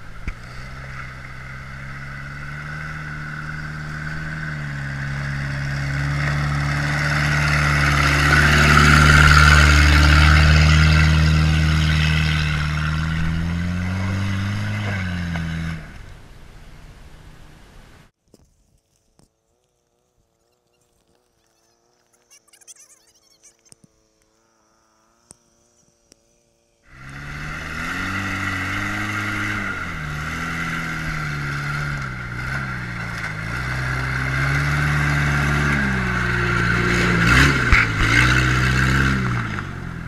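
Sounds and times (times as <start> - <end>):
engine revving: 0.0 - 17.6, 26.8 - 40.0.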